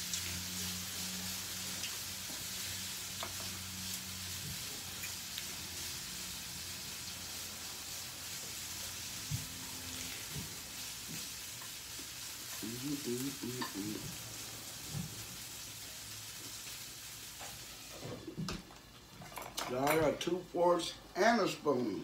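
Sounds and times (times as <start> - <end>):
food sizzling in frying pan: 0.0 - 20.6.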